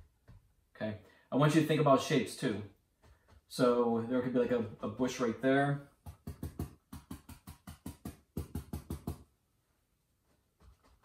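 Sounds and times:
brush tapping on canvas: 2.9 - 3.7, 5.9 - 9.3, 10.4 - 11.0.

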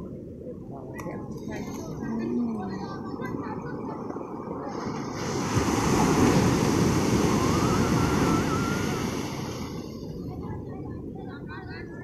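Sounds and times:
sea surf breaking on shore: 4.5 - 11.7.

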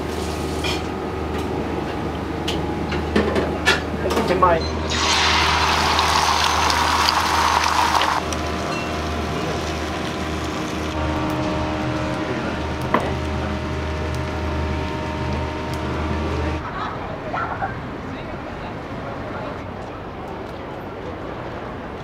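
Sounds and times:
steady low hum: 0.0 - 16.8
egg sizzling on hot plate: 4.9 - 15.0.

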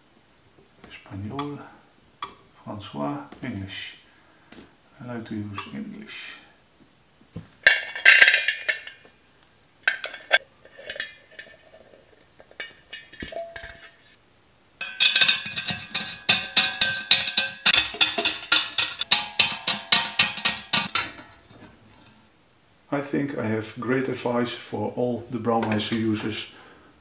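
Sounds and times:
metal kettle parts clinking: 7.6 - 9.0, 9.8 - 11.9, 12.5 - 14.0, 14.8 - 21.4
fast metallic taps: 14.8 - 21.3.

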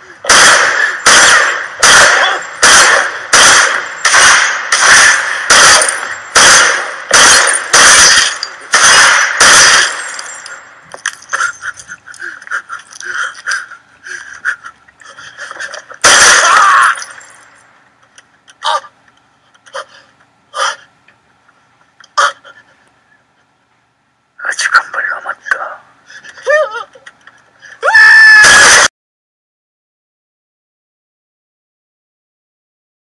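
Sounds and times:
loud burst: 0.2 - 10.3, 16.0 - 16.9
pistol shots: 0.2 - 10.6, 16.0 - 17.2
breaking glass tinkling: 9.8 - 11.8, 16.7 - 17.6.

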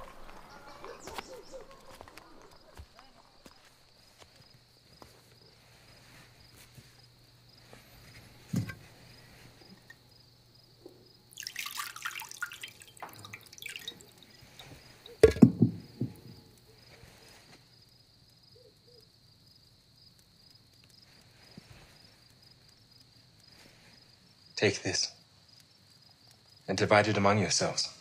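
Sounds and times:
crickets chirring: 0.0 - 28.0
water pouring and splashing: 11.3 - 16.2.

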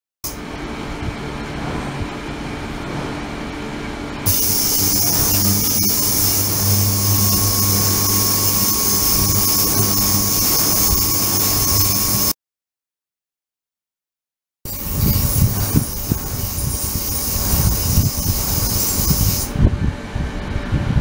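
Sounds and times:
low hum: 0.4 - 12.3
thin steady tone: 4.3 - 12.3, 14.7 - 19.5
ultrasonic cleaner high hiss: 4.3 - 12.3, 14.7 - 19.5.

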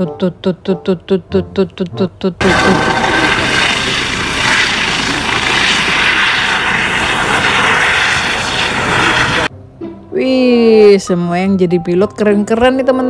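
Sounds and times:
toy helicopter engine sound effect: 2.4 - 9.5.

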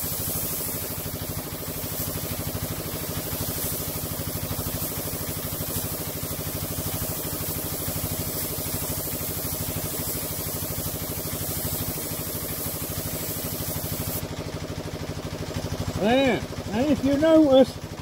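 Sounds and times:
spray gun hissing: 0.0 - 14.3
piston air compressor pulsing: 0.0 - 18.0.

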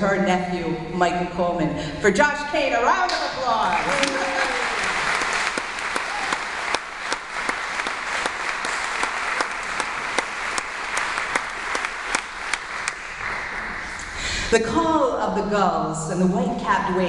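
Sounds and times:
audience applauding: 3.6 - 14.1.

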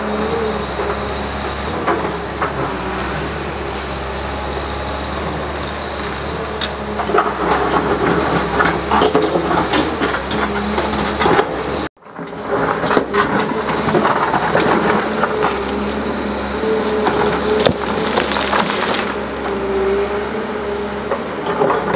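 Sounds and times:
excavator diesel engine running: 0.0 - 21.9
steel bucket scraping on stones: 16.8 - 19.3.

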